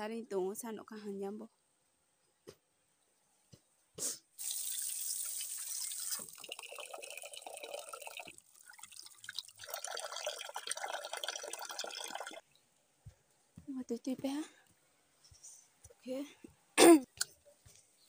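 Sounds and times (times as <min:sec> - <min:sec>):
tap water splashing into pot: 0:04.4 - 0:09.7.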